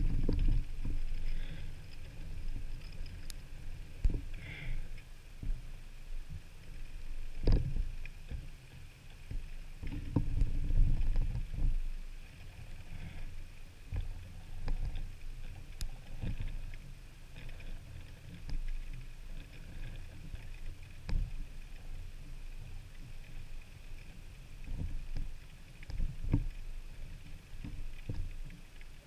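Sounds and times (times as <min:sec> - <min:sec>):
low knocks and thumps: 0:00.0 - 0:01.2
water lapping and sloshing: 0:00.0 - 0:29.0.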